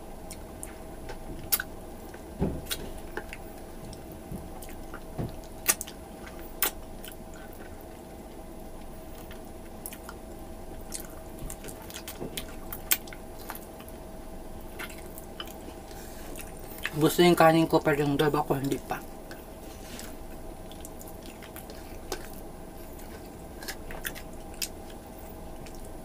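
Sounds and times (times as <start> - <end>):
faint steady hum: 0.0 - 26.0
person chewing: 0.2 - 17.0, 18.6 - 26.0
wet mouth smacks and clicks: 5.6 - 6.0, 6.6 - 7.2.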